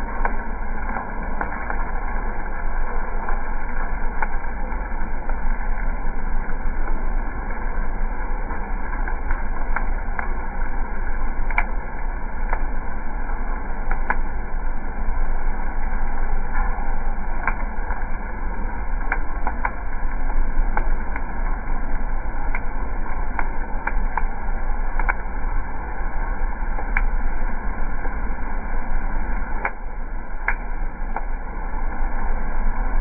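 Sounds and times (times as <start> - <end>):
low hum of roaster: 0.0 - 33.0
sharp clicks: 25.0 - 25.2.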